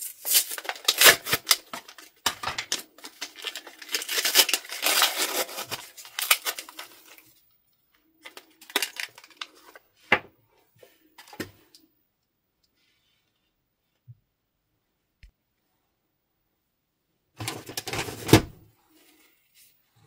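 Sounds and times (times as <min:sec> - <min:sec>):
packaging crinkling and tearing: 0:00.0 - 0:07.5, 0:08.2 - 0:09.8.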